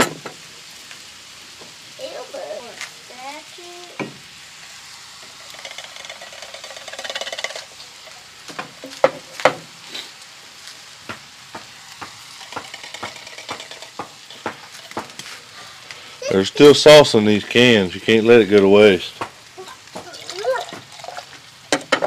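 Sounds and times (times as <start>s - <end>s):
meat sizzling in a skillet: 0.0s - 22.0s
sauce pouring into a pan: 4.2s - 8.9s, 19.4s - 22.0s
sharp metal knocks: 11.5s - 15.1s
spoon tapping a can: 12.0s - 15.0s.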